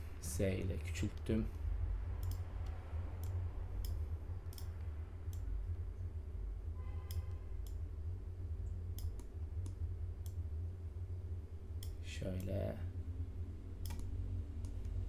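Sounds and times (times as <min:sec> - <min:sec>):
steady low hum: 0:00.0 - 0:15.0
mouse and keyboard clicks: 0:13.8 - 0:14.9.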